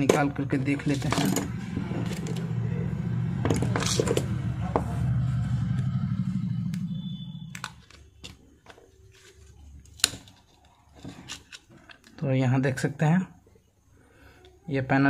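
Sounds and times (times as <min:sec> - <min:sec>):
low steady rumble: 0:00.0 - 0:08.0.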